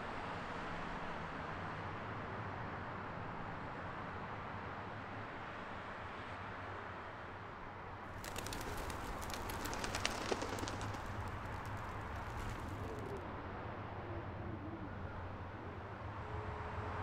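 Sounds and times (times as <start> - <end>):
pigeon wings flapping: 8.1 - 13.2
pigeon cooing: 8.2 - 13.2.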